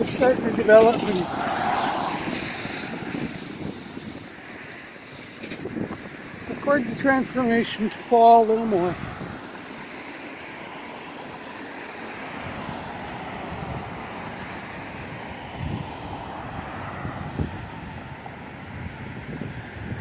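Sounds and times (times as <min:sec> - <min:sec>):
wind buffeting microphone: 0:00.0 - 0:20.0
vehicle driving past: 0:00.7 - 0:05.8.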